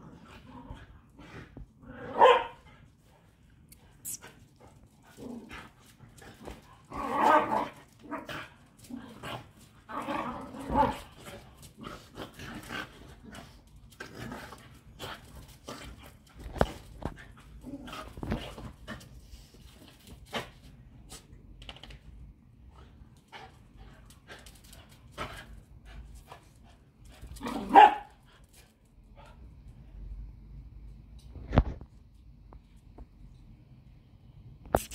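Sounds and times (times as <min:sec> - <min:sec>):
dogs barking and yapping: 0:02.0 - 0:02.6, 0:06.6 - 0:08.6, 0:27.4 - 0:28.2.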